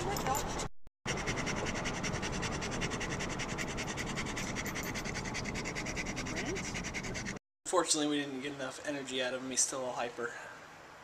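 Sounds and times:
dog panting: 0:00.1 - 0:07.4.

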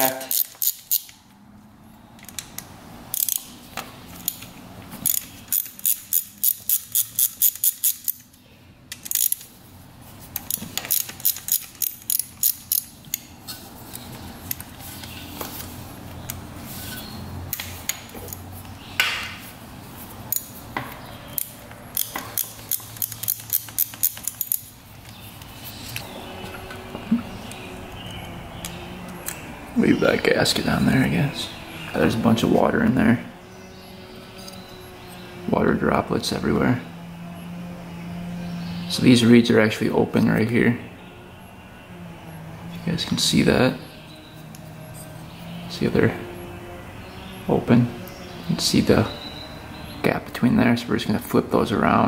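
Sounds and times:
ratchet wrench clicking: 0:00.0 - 0:01.2, 0:02.2 - 0:03.5, 0:04.2 - 0:08.3, 0:08.9 - 0:09.5, 0:10.4 - 0:13.3, 0:21.3 - 0:24.7.

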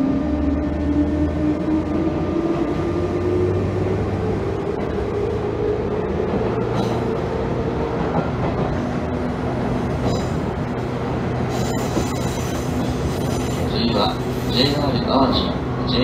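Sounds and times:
train traction motors humming: 0:00.0 - 0:16.0
high-pitched wheel squeals: 0:11.5 - 0:14.2.

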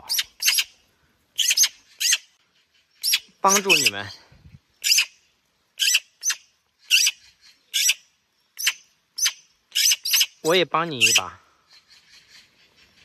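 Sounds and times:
young magpies begging calls: 0:00.0 - 0:00.8, 0:01.4 - 0:04.2, 0:04.8 - 0:05.2, 0:05.8 - 0:13.0.

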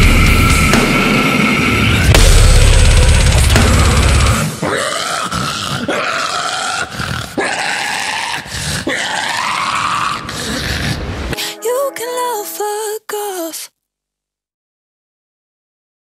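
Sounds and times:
heavy metal breakdown: 0:00.0 - 0:06.3
guttural vocal growls: 0:02.9 - 0:11.2.

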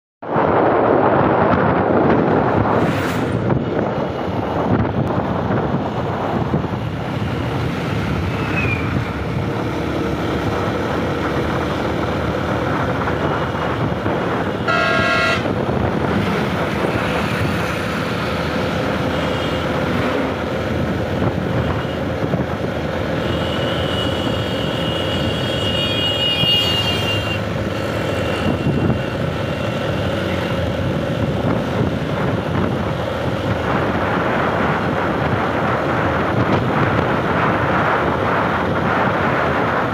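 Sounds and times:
vehicle engine and road noise: 0:00.2 - 0:39.9
wind rush on microphone: 0:00.2 - 0:39.9
vehicle horn honk: 0:14.6 - 0:15.6, 0:23.2 - 0:29.0.

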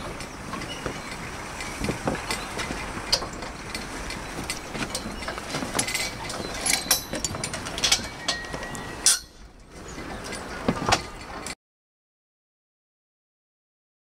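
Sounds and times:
metal scaffolding tubes clinking: 0:00.0 - 0:11.6.

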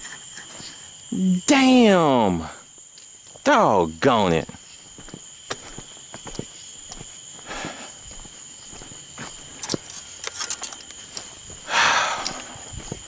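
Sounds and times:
insect chorus: 0:00.0 - 0:13.0
footsteps on concrete: 0:04.5 - 0:09.9, 0:11.2 - 0:13.0.

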